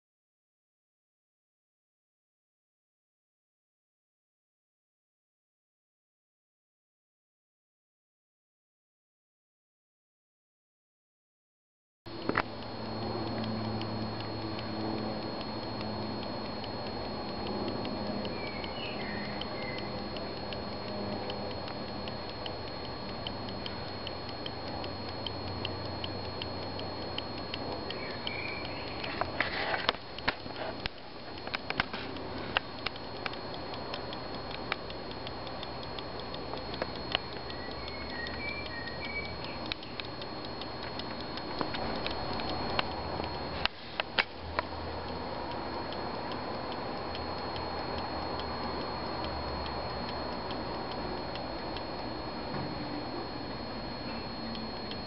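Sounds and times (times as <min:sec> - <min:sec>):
pocket watch ticking: 0:12.1 - 0:55.0.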